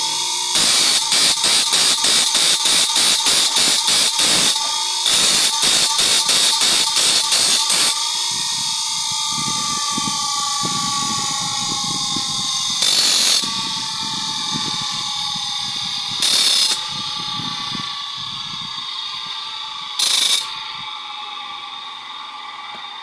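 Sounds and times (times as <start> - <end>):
saw blade grinding on wheel: 0.0 - 8.0, 10.5 - 14.0, 16.1 - 17.8, 20.0 - 20.6
bench grinder whining: 0.0 - 23.0.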